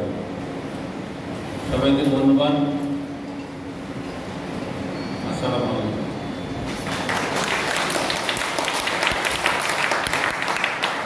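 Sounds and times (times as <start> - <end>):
crowd applauding: 6.7 - 11.0.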